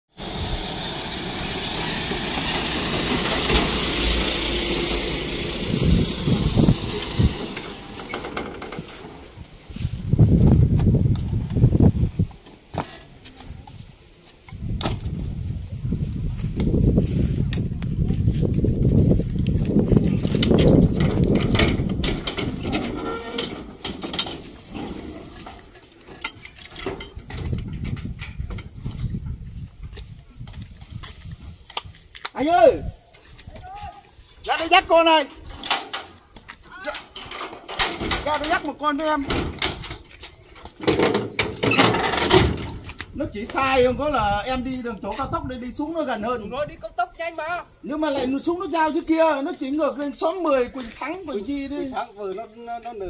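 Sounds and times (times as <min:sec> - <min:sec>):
truck diesel engine passing: 0:00.2 - 0:08.6
metal doors clanking open: 0:02.2 - 0:09.3, 0:20.9 - 0:28.8, 0:35.4 - 0:36.2, 0:36.8 - 0:42.8.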